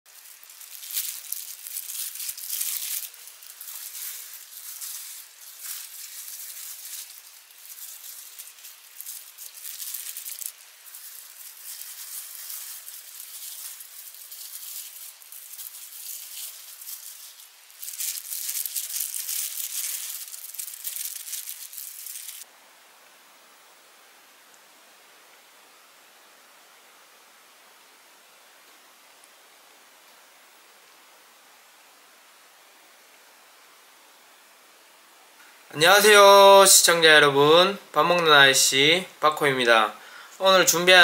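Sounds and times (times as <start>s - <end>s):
plastic gloves crinkling: 0.1s - 22.5s, 39.8s - 41.0s.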